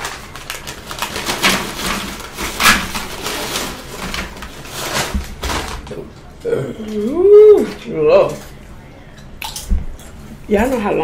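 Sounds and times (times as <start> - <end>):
paper bag rattling: 0.0 - 6.0.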